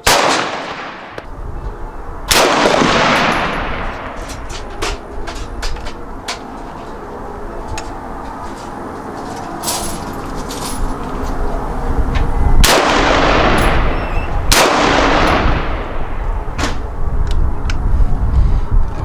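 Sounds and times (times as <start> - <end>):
loud pistol shots echoing: 0.0 - 1.3, 2.3 - 4.2, 12.6 - 16.2.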